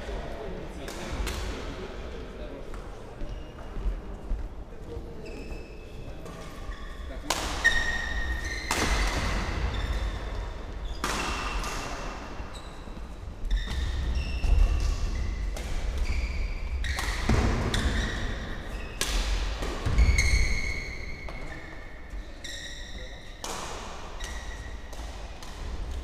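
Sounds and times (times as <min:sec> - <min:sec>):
shoes squeaking on court floor: 0:03.2 - 0:03.9, 0:05.0 - 0:23.4, 0:24.2 - 0:25.0
rackets hitting shuttlecocks: 0:07.2 - 0:12.5, 0:16.8 - 0:20.6, 0:23.4 - 0:26.0.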